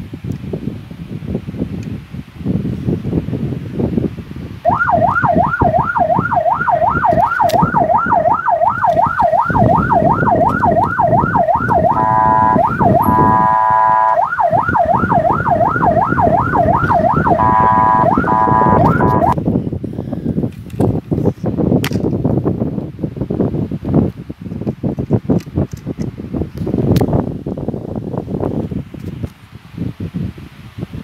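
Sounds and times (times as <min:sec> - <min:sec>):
electronic siren warbling: 0:04.6 - 0:19.4
buzzing horn tone: 0:08.8 - 0:14.4, 0:15.0 - 0:19.4.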